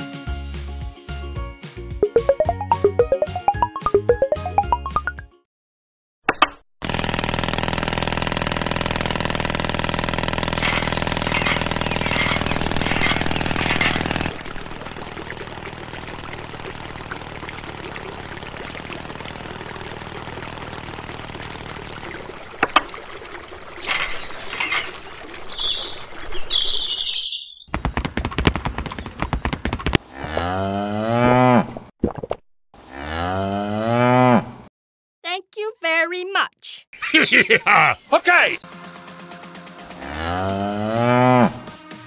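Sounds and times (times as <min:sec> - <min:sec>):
diesel water pump engine running: 0:06.9 - 0:25.9
birds chirping: 0:10.6 - 0:14.3, 0:23.8 - 0:27.7, 0:37.0 - 0:38.6
water pouring and splashing: 0:10.6 - 0:27.0.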